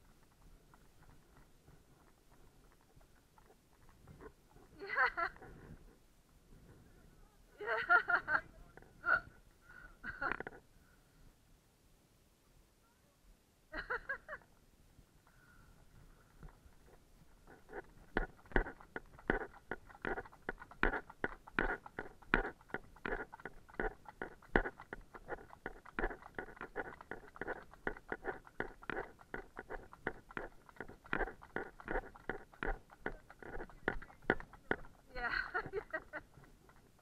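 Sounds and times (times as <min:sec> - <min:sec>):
hooves clip-clopping on tarmac: 0:00.0 - 0:04.6, 0:16.4 - 0:37.0.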